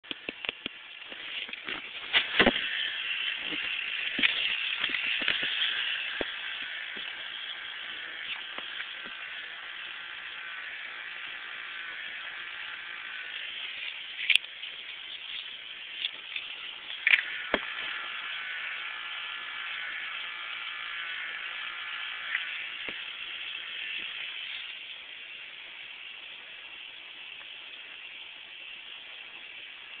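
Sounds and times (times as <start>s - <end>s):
small electric motor whirring: 0.1s - 30.0s
sharp clicks: 13.8s - 18.0s.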